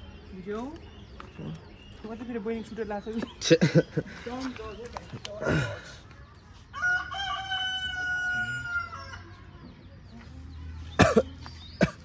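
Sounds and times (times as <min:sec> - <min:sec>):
rooster crowing: 0:06.8 - 0:09.3.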